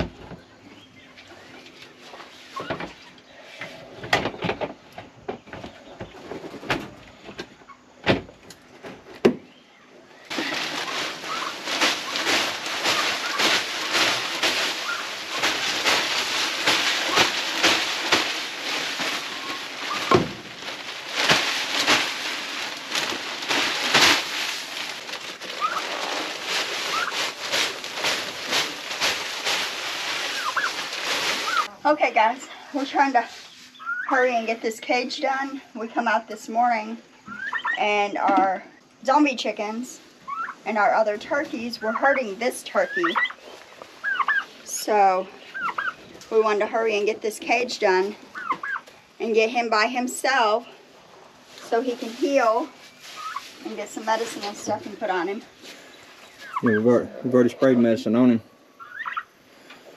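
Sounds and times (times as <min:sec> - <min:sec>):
wood shavings rustling out of bag: 0:10.2 - 0:31.8, 0:47.8 - 0:57.5.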